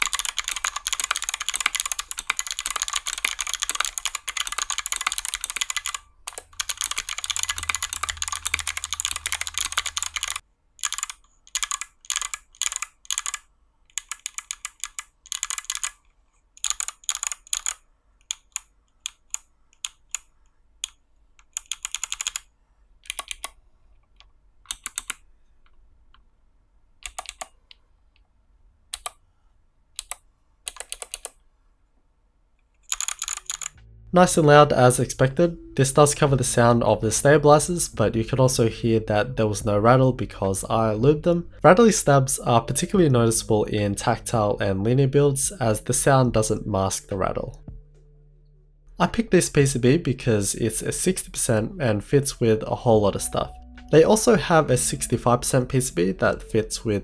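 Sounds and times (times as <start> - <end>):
clicky mechanical keyboard typing: 0.0 - 16.0, 16.6 - 23.6, 24.2 - 25.2, 27.0 - 27.8, 29.0 - 29.2, 30.0 - 31.4, 32.8 - 33.8.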